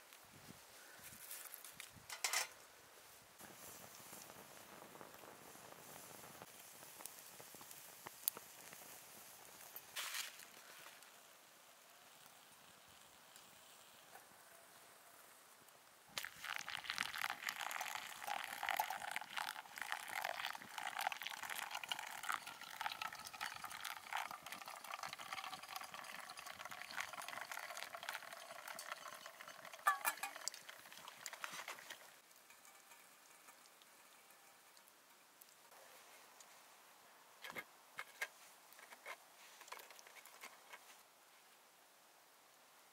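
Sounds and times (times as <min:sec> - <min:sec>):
hot water trickling onto coffee: 0:03.4 - 0:14.2, 0:16.1 - 0:35.7, 0:37.4 - 0:41.0.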